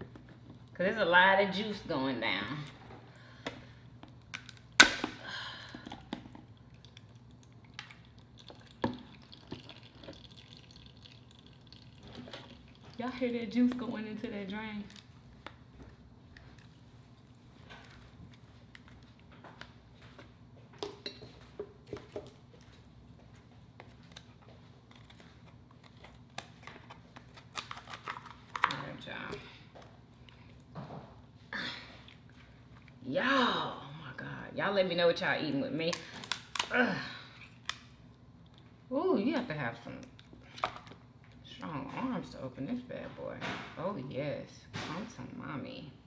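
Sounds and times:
lobster shell cracking: 0:04.2 - 0:05.1, 0:24.9 - 0:28.8, 0:35.9 - 0:36.7, 0:37.4 - 0:38.0.

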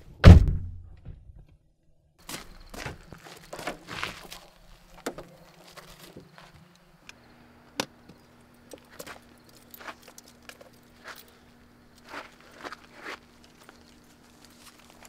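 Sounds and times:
footsteps crunching on gravel: 0:02.2 - 0:06.7, 0:08.8 - 0:15.0.

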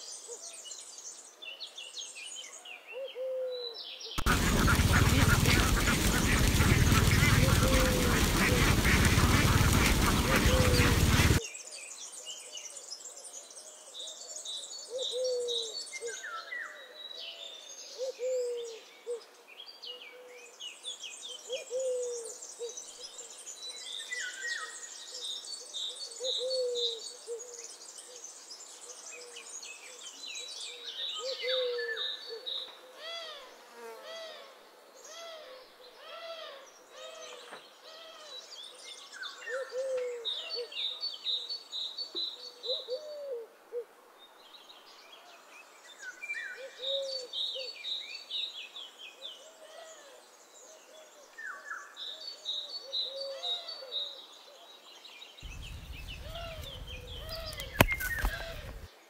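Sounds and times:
birds calling low falling notes: 0:04.2 - 0:11.4, 0:55.4 - 0:58.9
ducks quacking loudly: 0:04.2 - 0:11.4
bird chirps and twitters: 0:55.4 - 0:58.9.

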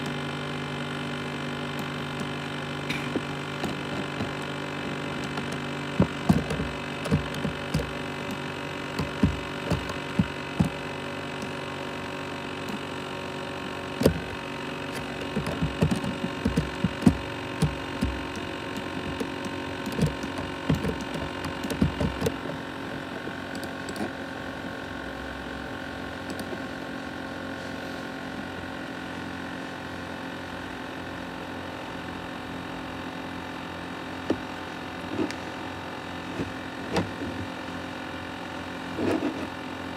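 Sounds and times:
laptop fan humming and whining: 0:00.0 - 0:39.9
hard drive knocks and clicks: 0:01.8 - 0:11.6, 0:14.0 - 0:24.2, 0:34.2 - 0:34.5, 0:36.3 - 0:37.6.

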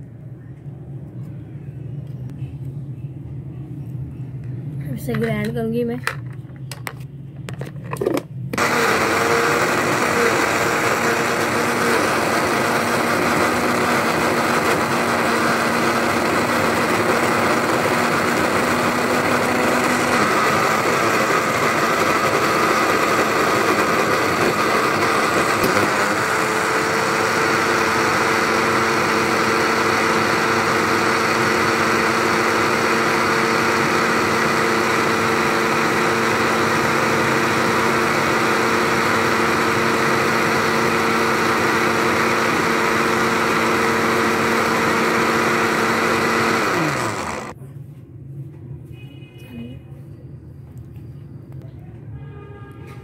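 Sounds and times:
electric blender running: 0:08.6 - 0:47.6.

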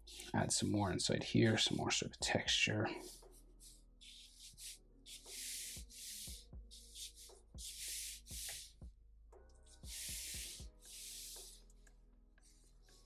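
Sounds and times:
marker scratching on paper: 0:00.0 - 0:00.3, 0:03.0 - 0:08.8, 0:09.7 - 0:11.8.

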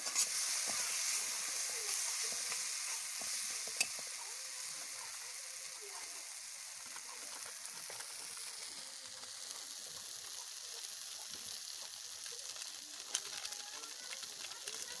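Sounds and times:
metal spatula scraping pan: 0:00.0 - 0:01.0
paste sizzling in hot oil: 0:00.0 - 0:15.0.

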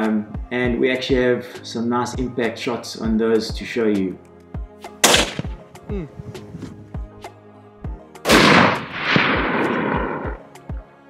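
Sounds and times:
background music with steady beat: 0:00.0 - 0:11.0
rifle shot: 0:05.0 - 0:05.6, 0:08.3 - 0:10.4.

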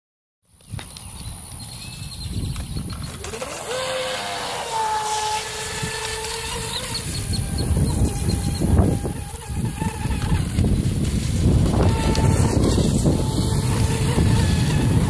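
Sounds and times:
rc boat electric motor whining: 0:02.9 - 0:15.0
low rumbling: 0:03.2 - 0:15.0.

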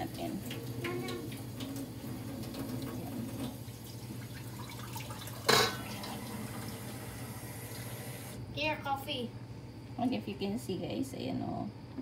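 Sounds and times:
kettle water bubbling: 0:00.0 - 0:08.4.

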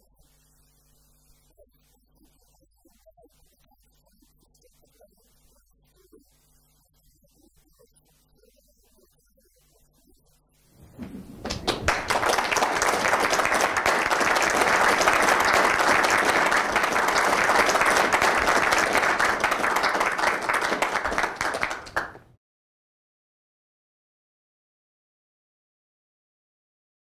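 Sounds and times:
audience applauding: 0:10.8 - 0:22.3.

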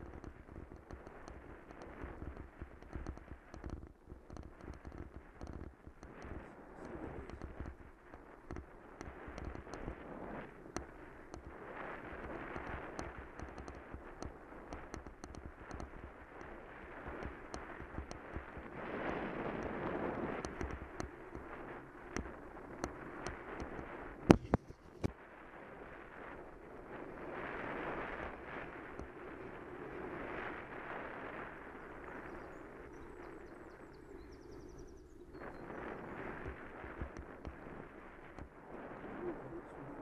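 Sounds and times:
small clicks: 0:00.0 - 0:25.2, 0:36.2 - 0:38.5
bicycle tyre rumble: 0:00.0 - 0:40.0
wind buffeting microphone: 0:00.0 - 0:40.0.

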